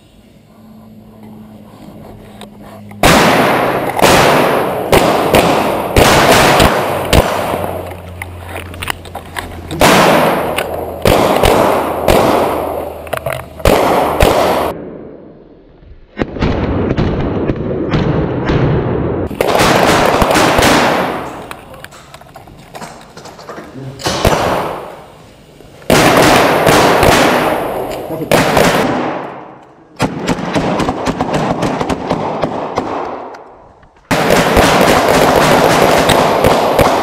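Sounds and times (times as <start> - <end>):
loud gunshots and bangs: 3.0 - 7.8, 9.7 - 13.0, 13.6 - 15.0, 16.2 - 21.4, 24.1 - 25.0, 25.9 - 33.3, 34.1 - 37.0.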